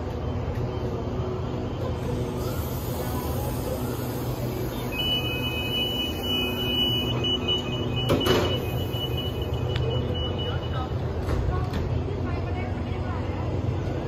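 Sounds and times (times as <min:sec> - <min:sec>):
train coaches rolling past: 0:00.0 - 0:14.0.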